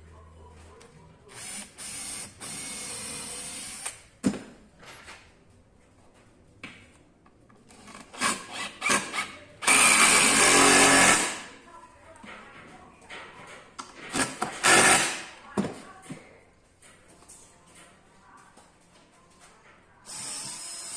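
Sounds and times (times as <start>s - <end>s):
power tool cutting wood: 8.6s - 11.4s.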